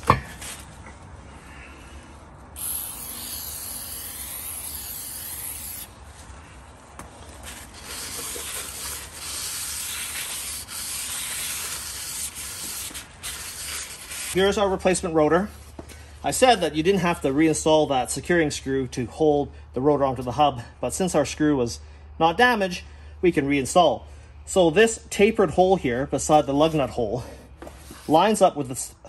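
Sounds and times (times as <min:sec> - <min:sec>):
aerosol spray hissing: 0:02.6 - 0:05.9.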